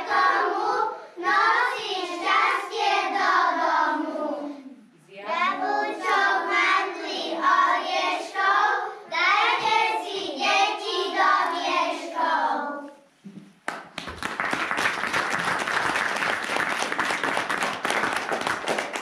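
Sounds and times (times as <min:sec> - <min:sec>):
children singing: 0:00.0 - 0:04.8, 0:05.4 - 0:13.1
audience applause: 0:13.9 - 0:19.0.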